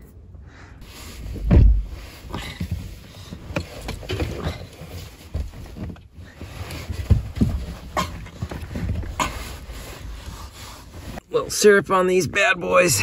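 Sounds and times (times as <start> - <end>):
heavy thump: 1.4 - 2.7
camp gear clattering: 2.2 - 10.3.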